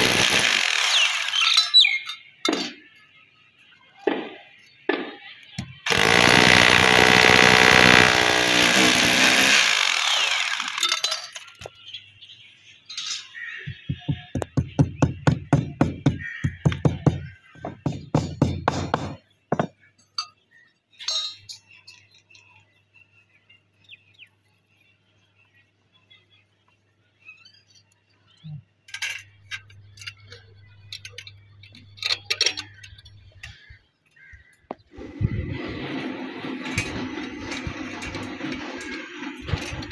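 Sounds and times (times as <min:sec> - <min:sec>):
hammer drill boring into concrete: 0:00.0 - 0:01.8, 0:05.8 - 0:11.4
small metal parts clinking: 0:10.0 - 0:11.7, 0:20.1 - 0:22.6, 0:28.8 - 0:33.6
hammer striking concrete: 0:13.7 - 0:19.7.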